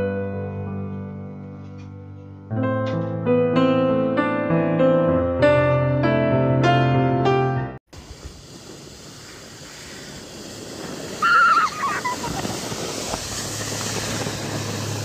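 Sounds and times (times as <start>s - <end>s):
wind hissing on microphone: 7.9s - 15.0s.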